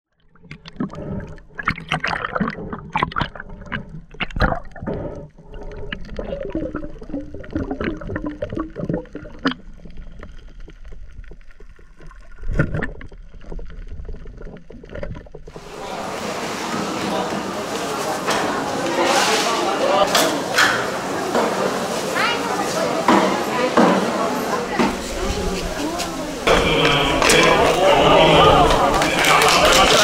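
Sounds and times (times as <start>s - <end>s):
underwater gurgling bubbles: 0.2s - 15.8s.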